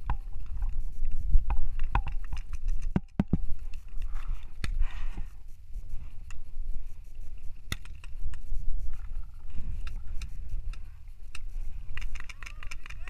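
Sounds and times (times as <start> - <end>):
wind buffeting microphone: 0.0 - 13.0
paintball markers popping: 9.8 - 13.0.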